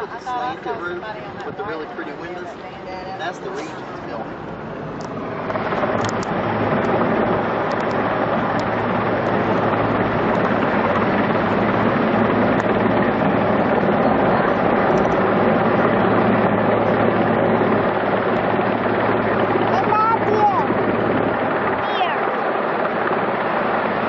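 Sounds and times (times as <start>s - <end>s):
helicopter hovering: 0.0s - 24.0s
low hum: 2.5s - 24.0s.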